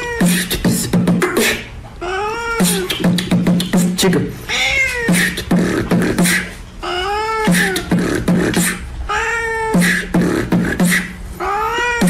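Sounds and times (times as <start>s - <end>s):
beatboxing: 0.0s - 1.8s, 2.6s - 6.6s, 7.4s - 9.0s, 9.6s - 11.3s
meow-like vocal call: 11.4s - 12.0s.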